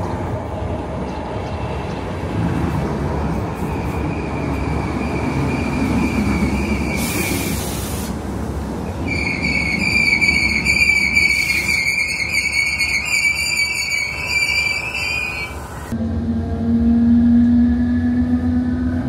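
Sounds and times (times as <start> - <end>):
train wheels rumbling on rail: 0.0 - 19.0
high wheel squeal: 9.0 - 15.9.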